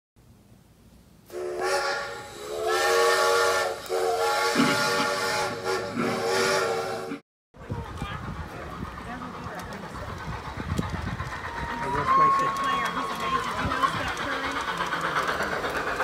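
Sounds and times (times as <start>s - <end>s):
steam whistle blasts: 1.3s - 7.2s
steam hissing: 1.3s - 16.0s.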